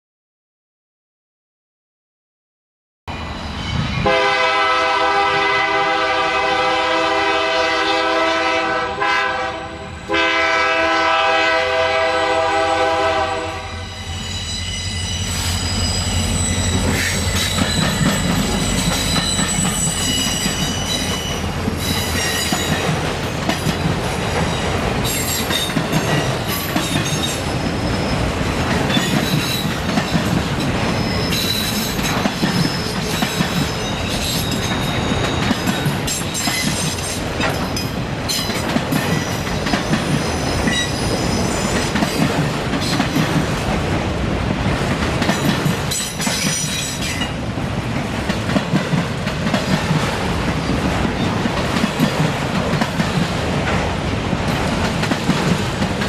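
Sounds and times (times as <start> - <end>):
locomotive rumbling past: 3.1 - 56.0
locomotive air horn: 4.0 - 14.0
wheels squealing: 13.8 - 22.7
wheels clacking over rail joints: 16.7 - 43.9, 44.6 - 56.0.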